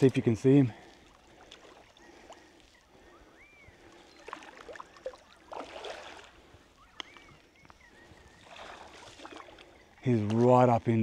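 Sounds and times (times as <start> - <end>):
creek water splashing: 0.0 - 11.0
whistled bird calls: 2.7 - 5.6, 6.4 - 10.2.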